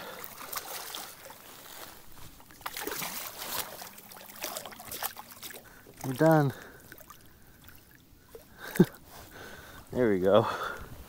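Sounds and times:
fish splashing at the surface: 0:00.0 - 0:01.8, 0:02.4 - 0:08.9.

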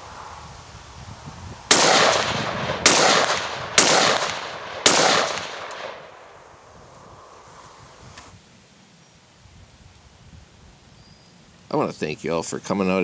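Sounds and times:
pistol shots with ringing echo: 0:01.7 - 0:06.2.

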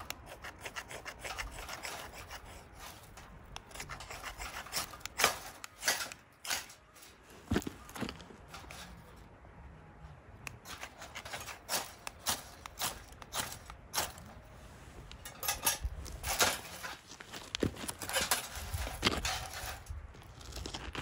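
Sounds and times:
objects clicking and clinking: 0:01.0 - 0:09.2, 0:15.1 - 0:20.0.

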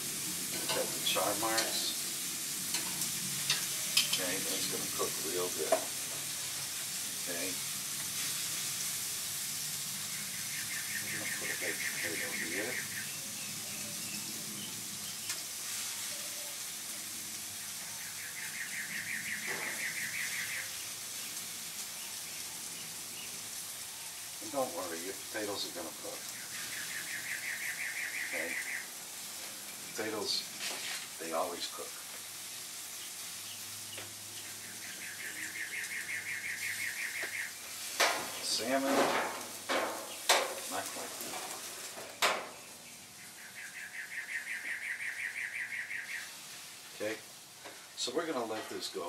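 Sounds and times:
chicken sizzling on a grill: 0:00.0 - 0:49.0
steady background hiss: 0:00.0 - 0:49.0
bird singing a fast trill: 0:10.2 - 0:15.3, 0:18.0 - 0:20.9, 0:26.4 - 0:28.9, 0:34.4 - 0:37.6, 0:42.6 - 0:46.3
small bird trilling: 0:26.4 - 0:28.9, 0:33.0 - 0:37.6, 0:42.9 - 0:46.3.

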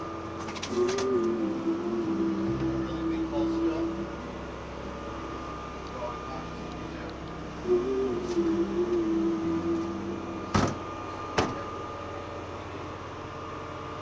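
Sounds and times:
emergency vehicles idling: 0:00.0 - 0:14.0
wavering pitched tone: 0:00.6 - 0:06.7, 0:07.6 - 0:11.3.

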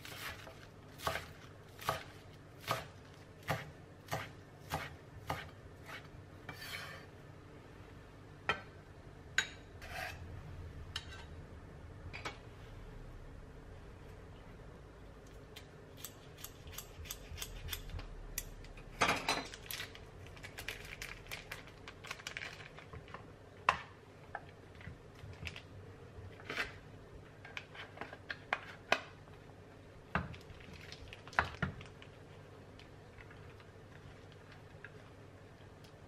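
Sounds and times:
plastic wrapper crinkling: 0:19.5 - 0:23.2, 0:30.3 - 0:34.7.

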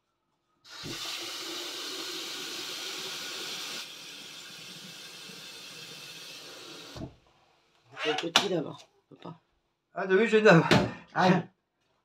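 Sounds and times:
tap water running into a pot: 0:00.7 - 0:07.1.

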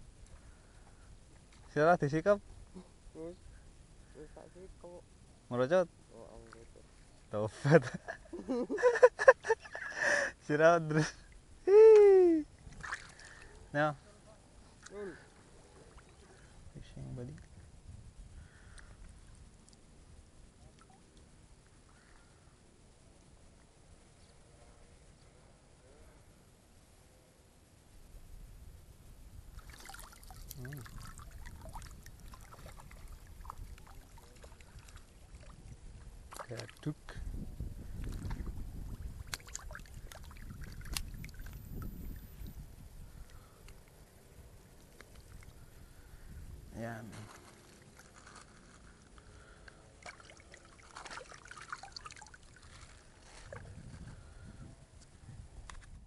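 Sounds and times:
low steady rumble: 0:00.0 - 0:10.3, 0:11.2 - 0:56.0
fish splashing in water: 0:12.7 - 0:13.5, 0:29.5 - 0:36.8, 0:38.2 - 0:41.7, 0:49.8 - 0:53.6
light crackles: 0:14.4 - 0:25.5, 0:29.4 - 0:46.3, 0:47.0 - 0:54.2.

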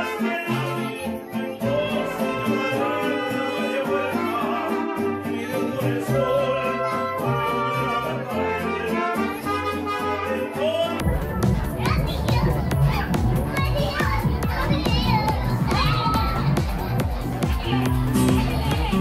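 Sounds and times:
mariachi band playing: 0:00.0 - 0:19.0
rhythmic bass line: 0:11.0 - 0:19.0.

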